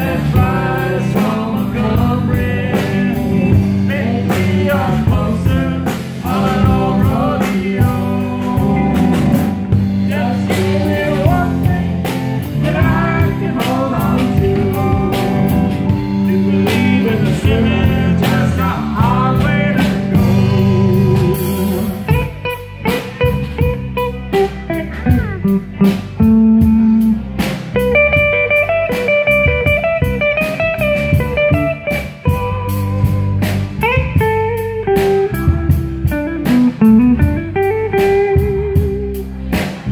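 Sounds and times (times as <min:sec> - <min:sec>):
person singing: 0:00.0 - 0:23.6
live blues-rock band: 0:00.0 - 0:39.9
electric guitar lead solo: 0:20.2 - 0:39.5.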